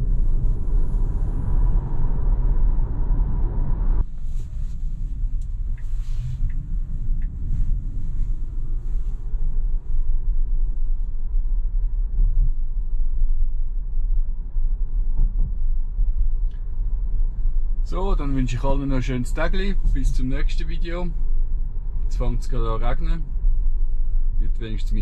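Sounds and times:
road and tyre rumble in car: 0.0s - 25.0s.

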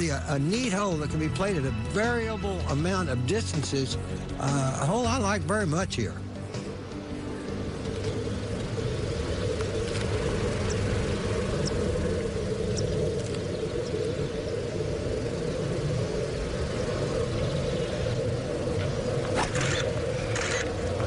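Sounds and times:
wind rumbling on microphone: 6.4s - 21.0s.

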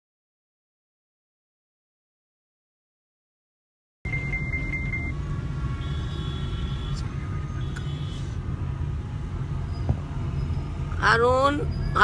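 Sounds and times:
short high beep: 4.1s - 5.2s
car interior rumble: 4.1s - 12.0s.

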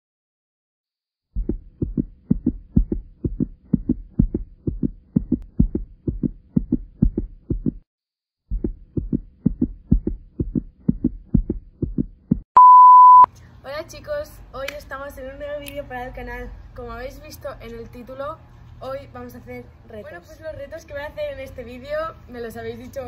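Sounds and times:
rapid low thumps: 1.3s - 7.9s, 8.5s - 12.4s.

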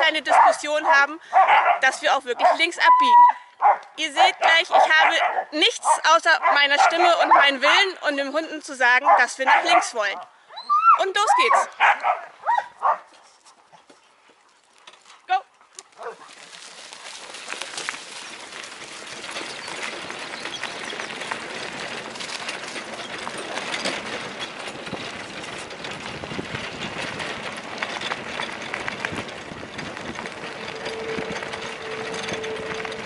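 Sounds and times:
wheels rolling on gravel: 0.0s - 3.0s, 3.6s - 10.1s, 11.4s - 33.0s
clicks and rattles from wheels: 6.2s - 10.2s, 13.4s - 33.0s.

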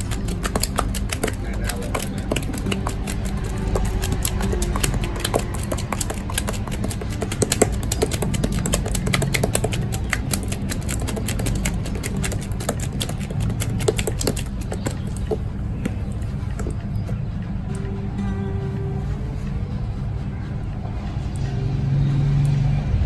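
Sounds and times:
squelching shampoo lather in hair: 0.0s - 16.8s
steady low hum: 0.0s - 23.0s.

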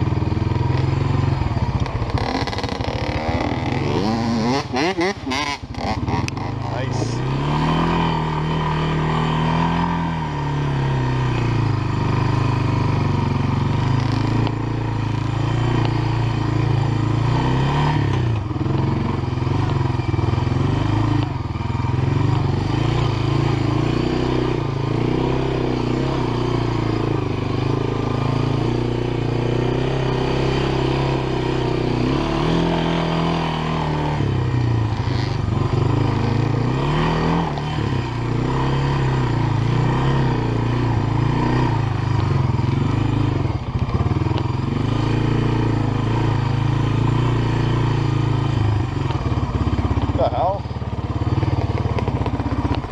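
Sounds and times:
atv engine running: 0.0s - 52.9s.

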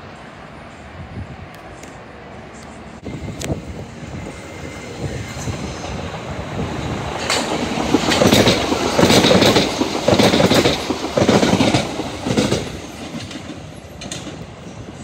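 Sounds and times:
train passing at speed: 0.0s - 15.0s
wheels clattering over rail joints: 7.0s - 14.5s.

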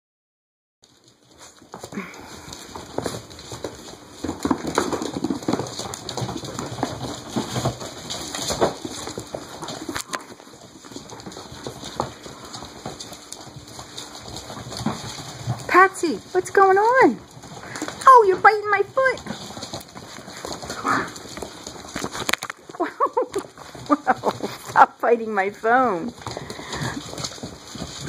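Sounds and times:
puppies making low noises: 0.8s - 28.0s
puppy paws tapping on tiles: 0.8s - 28.0s.

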